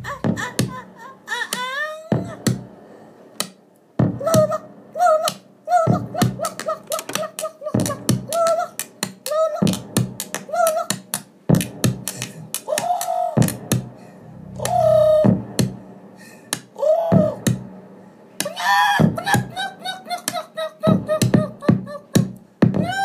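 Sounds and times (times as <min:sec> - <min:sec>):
electronic dance music: 0:07.8 - 0:12.6
downward-bending pitched notes: 0:13.4 - 0:16.2.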